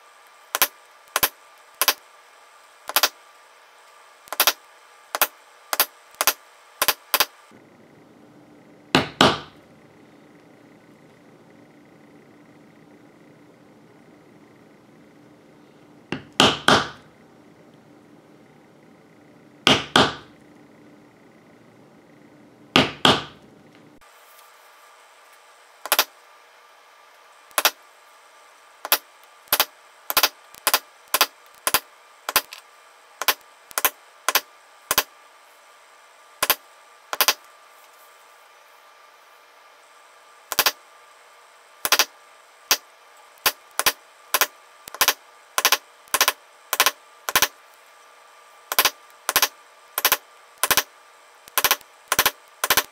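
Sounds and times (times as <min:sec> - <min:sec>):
mallet striking metal stamping tool: 0:09.0 - 0:09.6.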